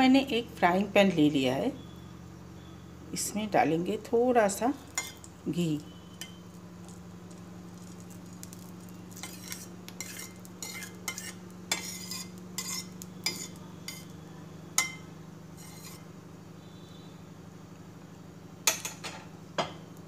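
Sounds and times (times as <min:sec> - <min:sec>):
steady low hum: 0:00.0 - 0:20.0
spatula scraping a steel pan: 0:09.2 - 0:14.1, 0:15.6 - 0:16.1.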